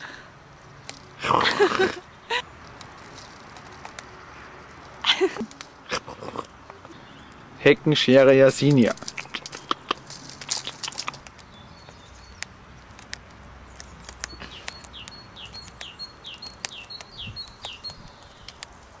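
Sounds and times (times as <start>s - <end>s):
rabbit gnawing twig: 0.7s - 1.2s, 2.4s - 19.0s
bird singing down-slurred notes: 6.6s - 12.5s, 13.6s - 18.6s.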